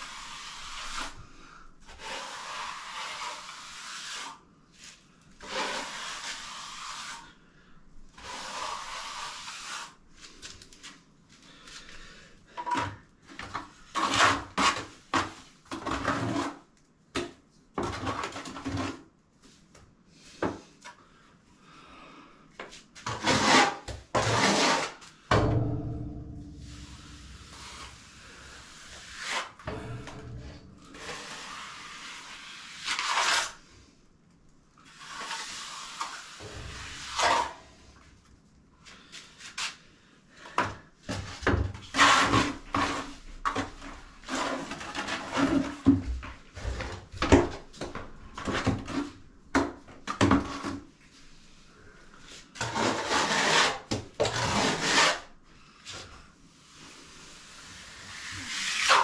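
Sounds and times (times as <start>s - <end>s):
hand float scraping render: 0.0s - 1.3s, 1.9s - 7.4s, 8.2s - 10.4s, 12.6s - 16.7s, 23.0s - 25.0s, 26.6s - 33.7s, 34.9s - 38.0s, 41.1s - 49.2s, 52.2s - 55.3s, 56.8s - 59.0s.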